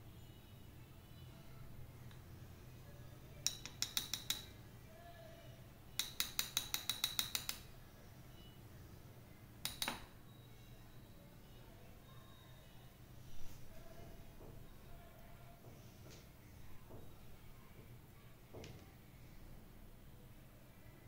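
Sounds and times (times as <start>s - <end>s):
spoon clinking on ceramic bowl: 3.4s - 4.5s.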